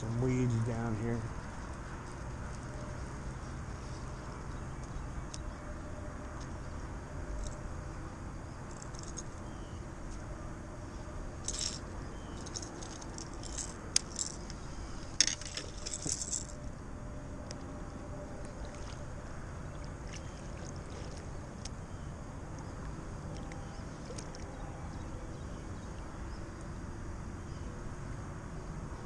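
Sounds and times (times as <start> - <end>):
fishing tackle clicks and rattles: 8.7 - 9.4, 11.4 - 14.6, 15.2 - 16.6.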